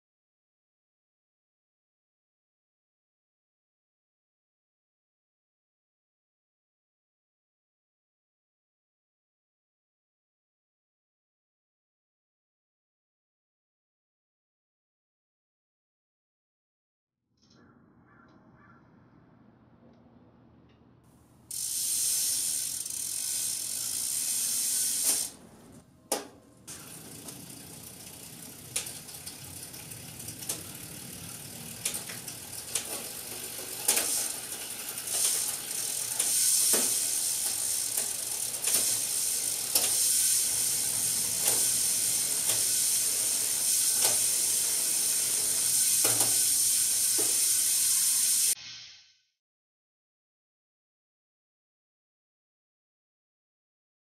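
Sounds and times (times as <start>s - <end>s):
bicycle chain running: 21.5s - 25.8s, 26.6s - 48.6s
freewheel ratcheting whirr: 21.5s - 48.6s.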